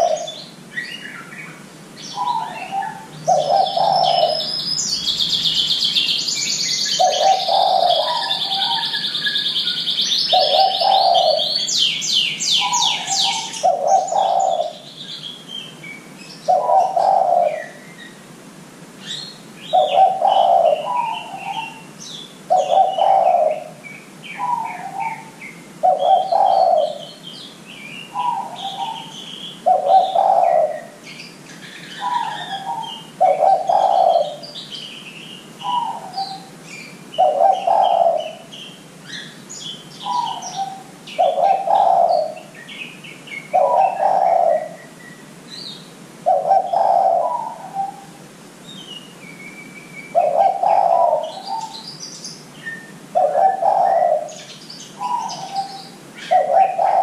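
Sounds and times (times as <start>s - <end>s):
dove cooing: 0.0s - 0.6s, 2.0s - 6.2s, 6.9s - 15.1s, 16.5s - 17.8s, 19.6s - 27.2s, 28.1s - 34.6s, 35.6s - 38.5s, 40.0s - 42.5s, 43.5s - 45.0s, 46.2s - 48.2s, 50.1s - 51.9s, 53.1s - 57.0s
songbird chirping and trilling: 0.0s - 18.3s, 19.0s - 57.0s.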